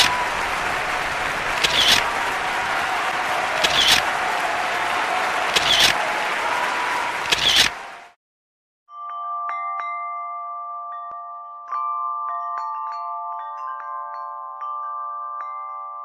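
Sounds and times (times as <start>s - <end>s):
audience applauding: 0.0s - 8.2s.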